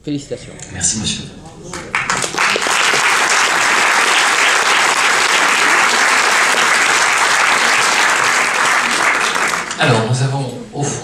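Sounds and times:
audience applauding: 1.7 - 10.1.

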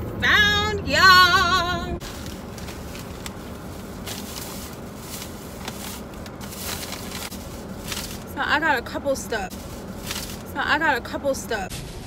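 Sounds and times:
steady low rumble: 0.0 - 12.0
shopping bag rustling: 2.0 - 10.6.

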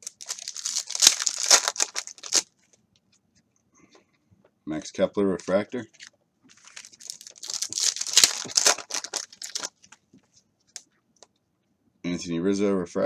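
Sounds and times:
foil wrapper tearing and crinkling: 0.0 - 2.5, 6.5 - 9.8.

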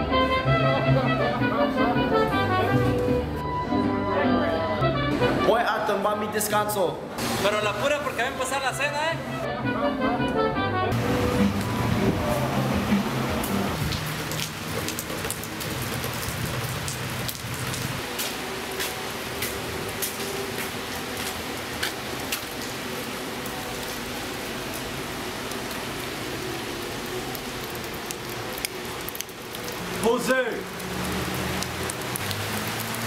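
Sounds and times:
rain falling on pavement: 11.0 - 33.0
scattered drips: 11.5 - 33.0.

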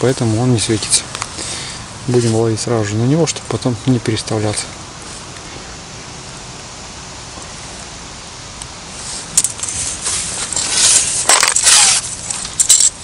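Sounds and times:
rod sections sliding and rubbing: 8.9 - 13.0.

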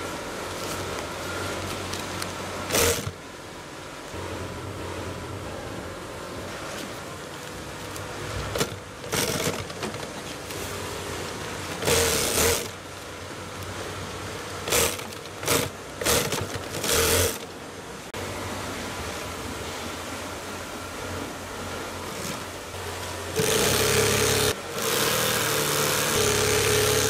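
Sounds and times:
machine room hum: 0.0 - 27.0
sewing machine stitching: 2.6 - 3.2, 8.4 - 10.5, 11.7 - 12.8, 14.6 - 17.5, 23.3 - 27.0.

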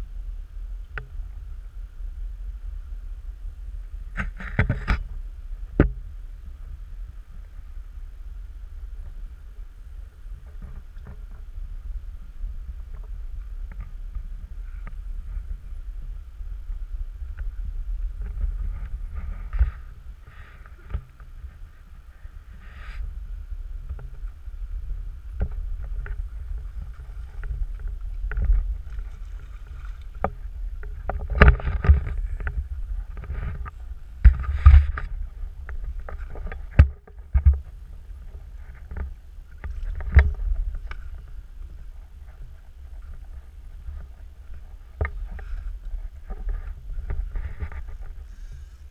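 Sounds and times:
steady low rumble: 0.0 - 48.9
water lapping against rocky bank: 23.9 - 48.5.

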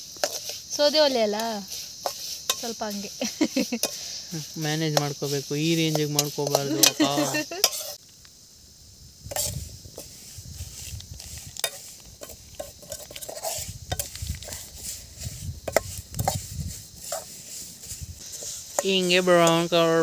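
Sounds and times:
metal spatula scraping a pan: 0.2 - 8.0, 9.3 - 20.0.

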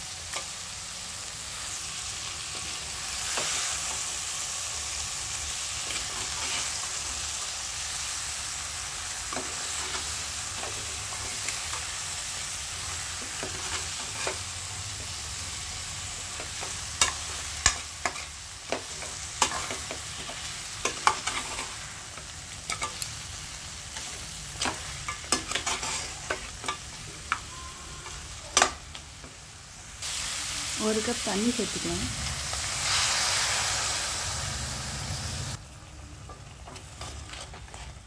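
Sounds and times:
crab frying and sizzling: 0.0 - 38.0
metal spatula scraping a pan: 5.8 - 7.0, 16.3 - 23.1, 23.9 - 28.7.

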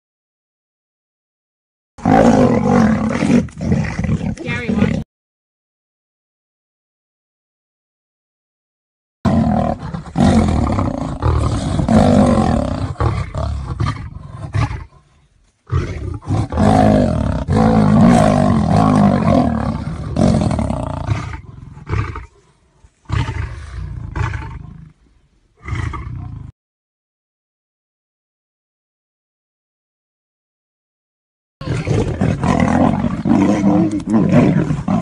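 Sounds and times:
lion and tiger roaring: 2.0 - 5.0, 9.3 - 25.0, 25.6 - 26.5, 31.6 - 35.0.

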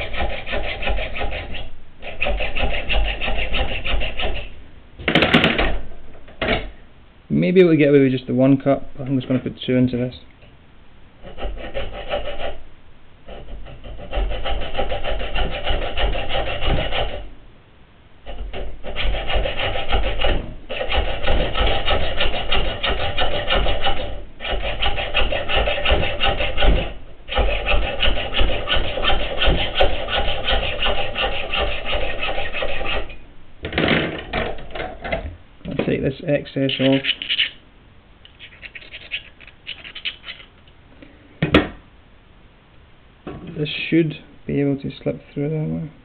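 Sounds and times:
hacksaw cutting metal tube: 0.0 - 4.5, 11.2 - 12.6, 13.3 - 17.3, 18.3 - 33.2, 36.6 - 37.6, 38.3 - 40.5.

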